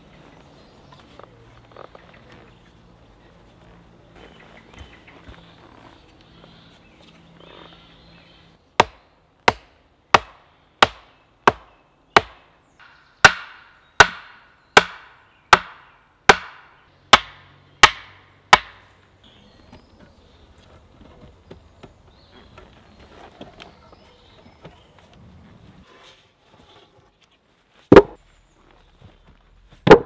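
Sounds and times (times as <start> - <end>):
axe knocking wooden stake: 8.8 - 18.8, 27.9 - 28.2.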